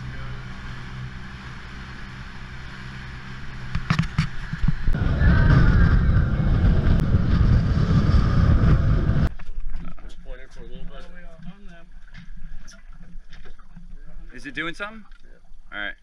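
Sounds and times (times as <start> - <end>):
rush of wind and water: 0.0 - 9.9
outboard motors humming: 0.0 - 16.0.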